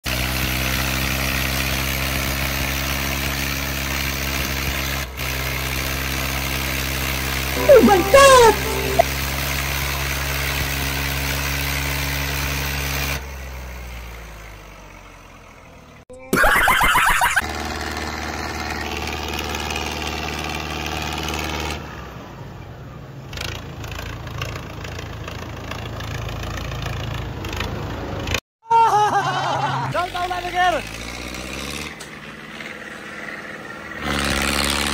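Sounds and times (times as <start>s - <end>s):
tractor diesel engines under load: 18.2s - 28.4s, 30.0s - 34.9s.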